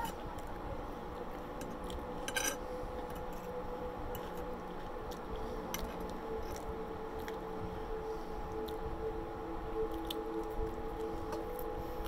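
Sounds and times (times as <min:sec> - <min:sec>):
steady background hum: 0:00.0 - 0:12.0
fork scraping on ceramic plate: 0:02.3 - 0:02.6.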